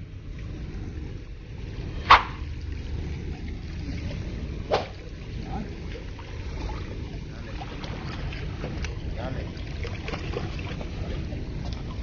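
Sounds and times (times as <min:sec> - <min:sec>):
seawater lapping at shore: 0:00.0 - 0:12.0
steady low rumble: 0:00.0 - 0:12.0
sharp splash: 0:02.0 - 0:02.5, 0:04.7 - 0:05.1.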